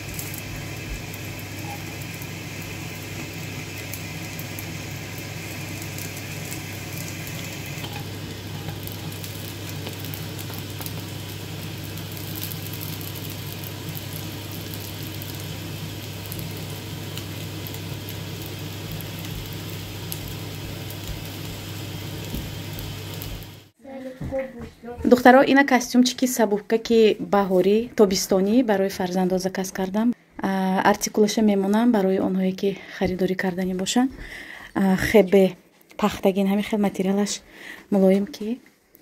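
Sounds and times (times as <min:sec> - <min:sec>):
pancakes sizzling in oil: 0:00.0 - 0:23.8.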